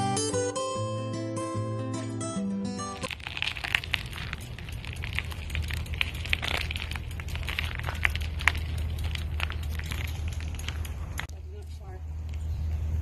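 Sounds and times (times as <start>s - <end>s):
irregular crackles and clicks: 3.0s - 11.4s
low rumble: 3.1s - 13.0s.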